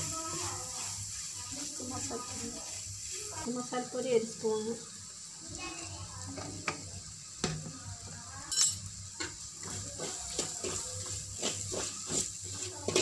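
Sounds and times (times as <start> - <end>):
food sizzling: 0.0 - 13.0
metal spoon scraping pan: 8.7 - 13.0.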